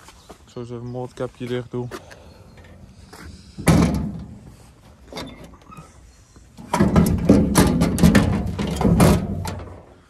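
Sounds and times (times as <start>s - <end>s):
mower hood clunking and rattling: 3.6s - 4.5s, 6.6s - 9.9s.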